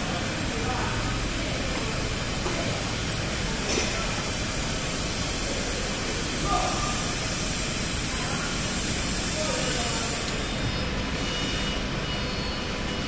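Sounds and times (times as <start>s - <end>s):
steady hissing workshop noise: 0.0s - 13.0s.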